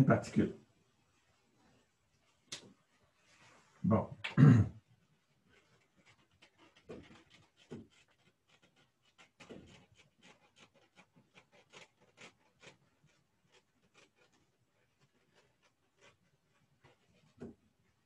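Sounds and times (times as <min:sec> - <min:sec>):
eraser rubbing on blackboard: 0:05.6 - 0:17.4.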